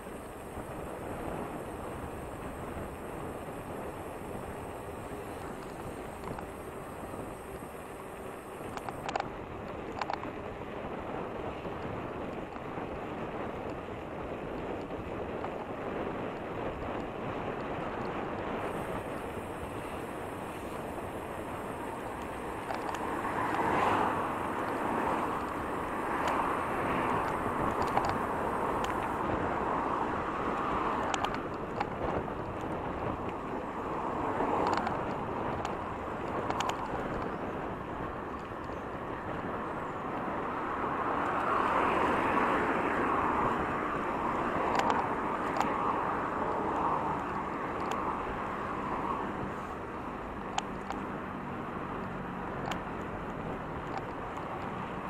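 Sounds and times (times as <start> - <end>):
cars passing: 0.0 - 10.5, 15.1 - 55.0
sharp clicks: 21.5 - 29.2, 30.5 - 33.4, 34.5 - 37.3, 44.6 - 45.8.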